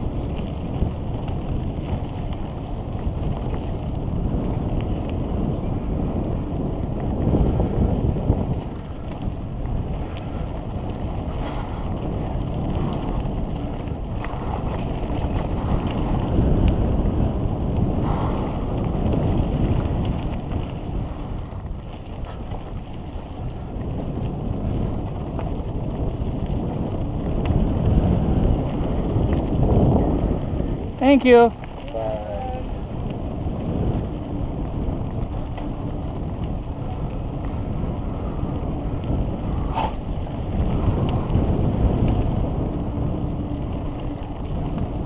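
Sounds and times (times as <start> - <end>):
bike tyres rumbling on dirt: 0.0 - 45.0
wind on microphone: 0.0 - 45.0
bike clicks and knocks: 8.2 - 30.1, 32.9 - 45.0.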